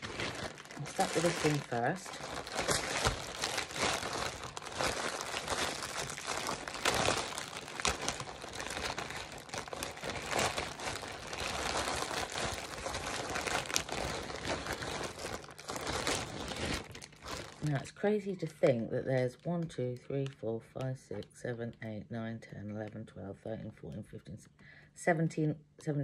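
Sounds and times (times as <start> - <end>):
plastic packaging crinkling: 0.0 - 17.9.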